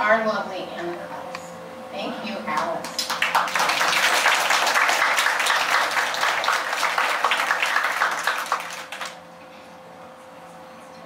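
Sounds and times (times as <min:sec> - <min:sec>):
audience applauding: 0:02.9 - 0:09.2.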